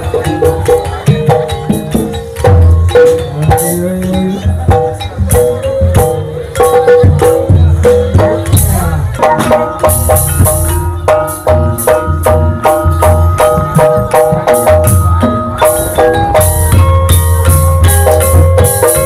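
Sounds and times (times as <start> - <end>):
deep drum beats: 0.0 - 19.0
metal-keyed gamelan notes: 0.0 - 19.0.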